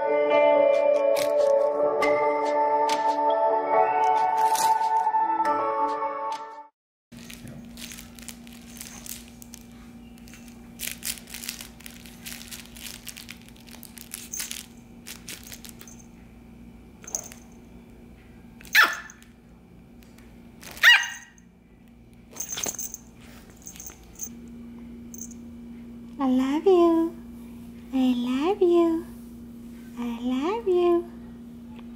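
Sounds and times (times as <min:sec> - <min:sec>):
puppy rustling a plush toy: 0:07.2 - 0:16.1
puppy yapping barks: 0:18.7 - 0:19.2, 0:20.8 - 0:21.3.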